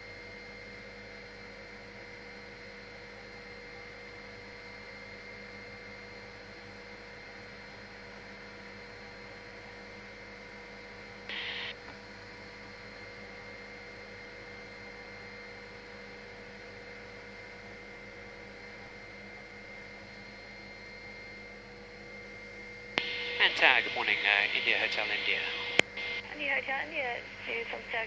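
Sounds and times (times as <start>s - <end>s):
electronic hum and hiss: 0.1s - 28.0s
fixed electronic tones: 11.3s - 11.7s, 23.0s - 26.6s.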